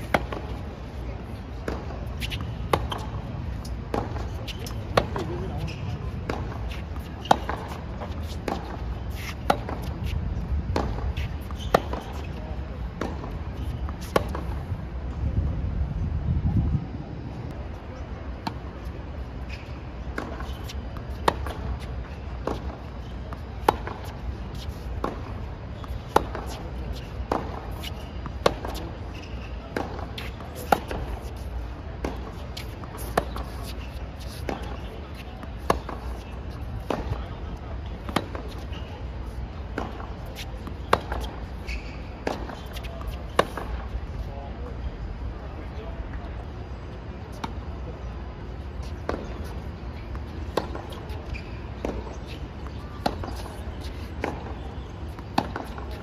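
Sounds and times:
tennis balls struck by racquets: 0.0 - 0.6, 1.5 - 12.2, 20.0 - 29.1, 29.7 - 38.8, 39.6 - 44.0, 48.8 - 56.0
tennis ball hit by racket: 22.4 - 26.6, 35.4 - 36.2, 36.8 - 37.2, 38.0 - 38.7, 39.7 - 41.4, 42.2 - 43.9, 50.1 - 56.0.

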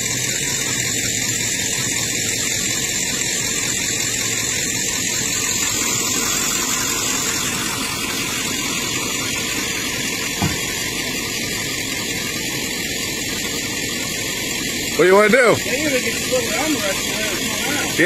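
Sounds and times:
truck engine running under load: 0.0 - 18.0
brief knock: 10.4 - 10.7.

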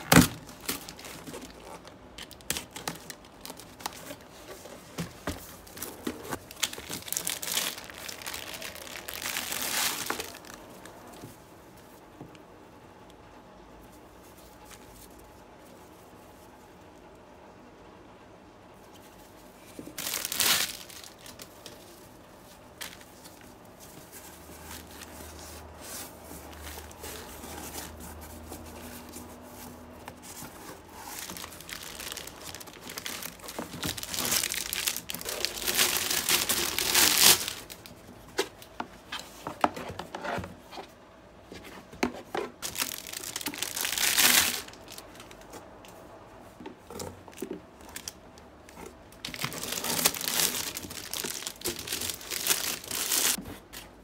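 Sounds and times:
plastic wrap crinkling: 0.0 - 11.3, 19.6 - 40.1, 42.3 - 46.0, 46.8 - 54.0.

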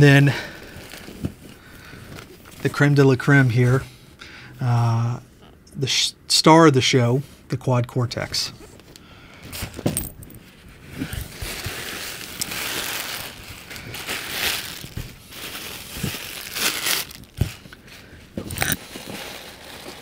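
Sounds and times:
bubble wrap crinkling: 10.4 - 20.0.

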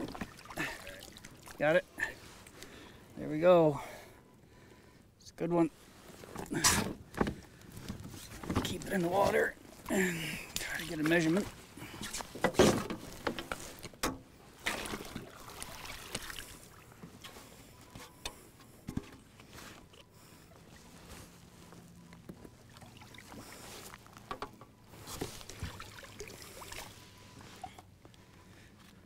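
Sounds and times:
light water sounds: 0.0 - 2.8, 8.6 - 12.2, 14.5 - 18.4, 19.4 - 27.9.

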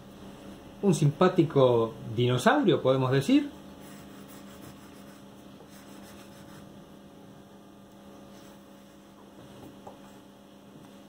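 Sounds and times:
electrical mains hum: 0.0 - 11.0
marker scratching on paper: 3.8 - 6.7.

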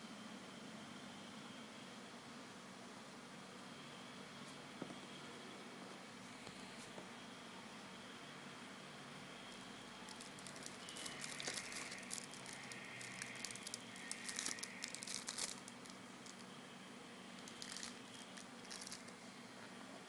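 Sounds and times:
plastic film crinkling: 10.0 - 16.5, 17.4 - 19.2.

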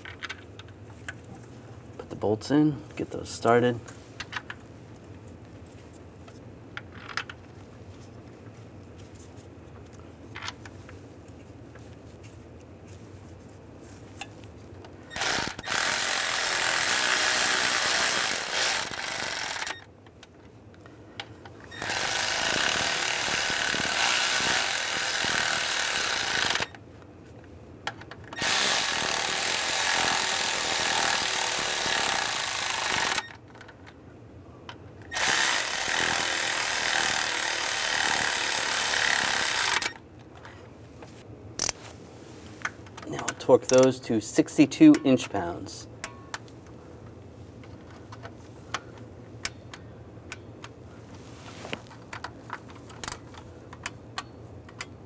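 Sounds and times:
power tool running bolts: 15.1 - 19.8, 21.7 - 26.8, 28.4 - 33.4, 35.0 - 40.0.

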